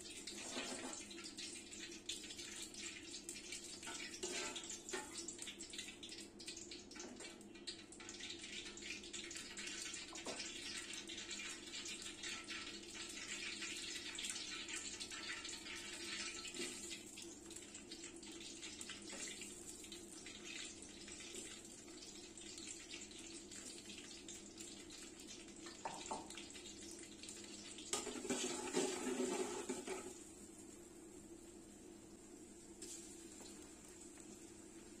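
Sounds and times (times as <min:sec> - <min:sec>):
hot oil sizzling and crackling: 0:00.0 - 0:35.0
spatula scraping a pot: 0:00.3 - 0:01.1, 0:04.2 - 0:04.6, 0:27.9 - 0:30.2.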